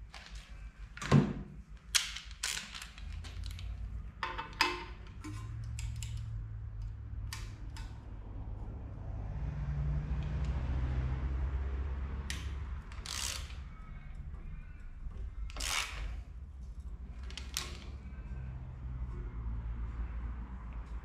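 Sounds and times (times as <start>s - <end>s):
ratchet clicking: 12.3s - 16.4s.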